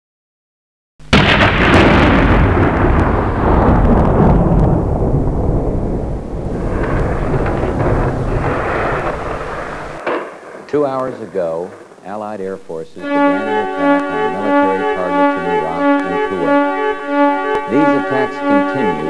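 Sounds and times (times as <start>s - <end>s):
loud explosion blast: 1.1s - 12.0s, 13.1s - 19.0s
long heavy rumble: 1.2s - 10.0s.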